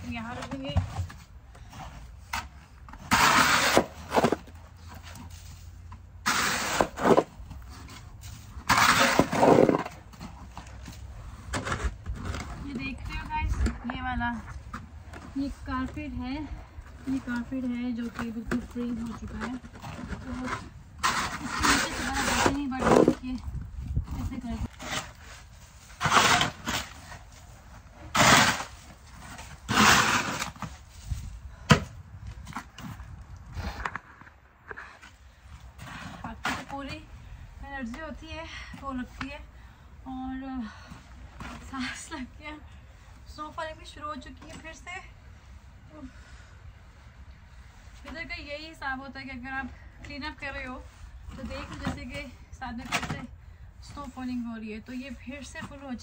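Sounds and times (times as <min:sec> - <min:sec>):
plastic snow shovel scraping: 0:01.7 - 0:13.7, 0:17.0 - 0:23.4, 0:24.2 - 0:31.4.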